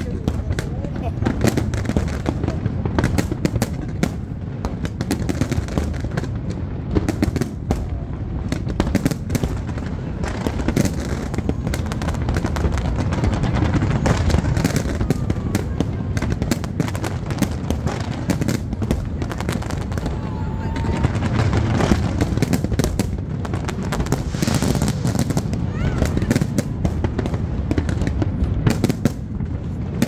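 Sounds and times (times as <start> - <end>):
fireworks bangs and crackles: 0.0 - 30.0
low rumble: 23.3 - 27.8.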